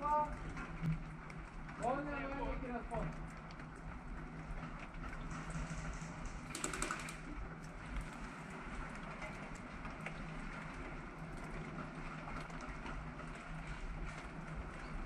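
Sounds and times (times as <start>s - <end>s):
low background hiss and hum: 0.0s - 15.0s
light clicks and taps: 0.2s - 8.2s
quick rattle of clicks: 5.3s - 7.4s.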